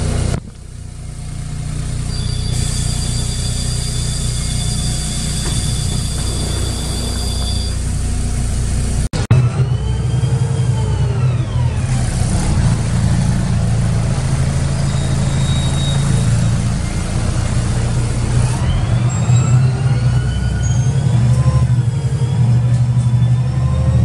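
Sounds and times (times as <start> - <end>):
bus engine drone: 0.0 - 24.0
whine changing pitch: 2.0 - 12.2.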